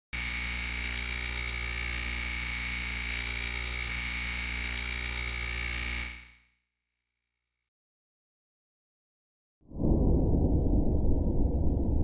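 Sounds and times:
electrical buzz: 0:00.2 - 0:06.5.

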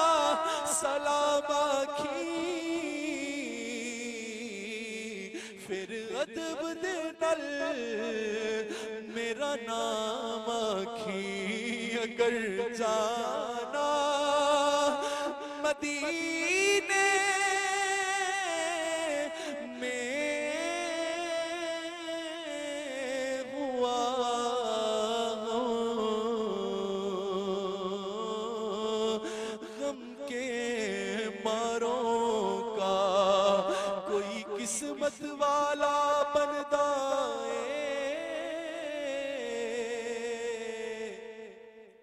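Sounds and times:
man singing unaccompanied: 0:00.0 - 0:42.0.

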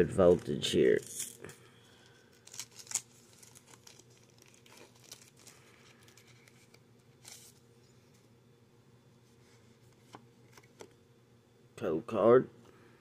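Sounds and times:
foil wrapper crinkling and tearing: 0:00.2 - 0:07.6.

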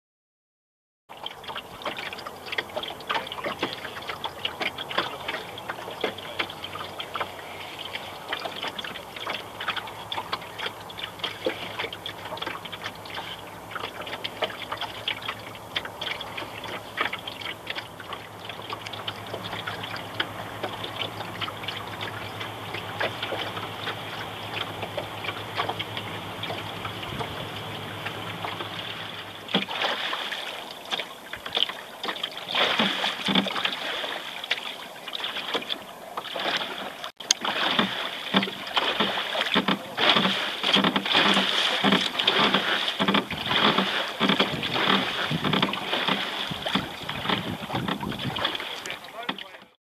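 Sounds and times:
water lapping against hull: 0:01.1 - 0:49.8
small irregular clicks and knocks: 0:37.2 - 0:48.1.

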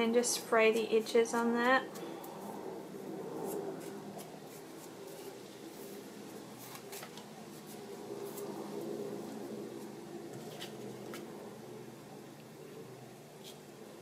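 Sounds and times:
low steady hum: 0:00.0 - 0:14.0
cloth rustling and scratching: 0:00.4 - 0:11.4.

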